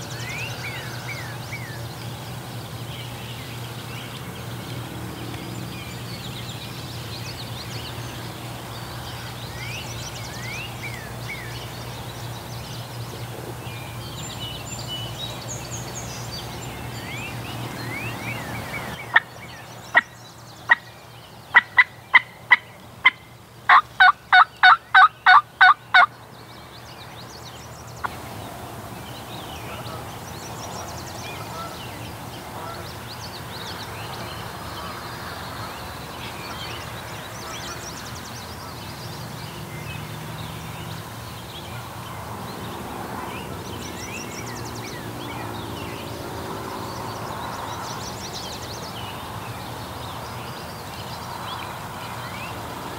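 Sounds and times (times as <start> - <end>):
songbirds chirping: 0.0 - 52.9
turkey calls: 21.5 - 26.1.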